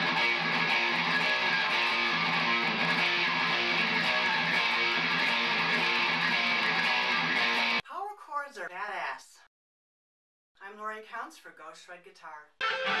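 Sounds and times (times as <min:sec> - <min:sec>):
electric guitar power chord riff: 0:00.0 - 0:07.8, 0:12.6 - 0:13.0.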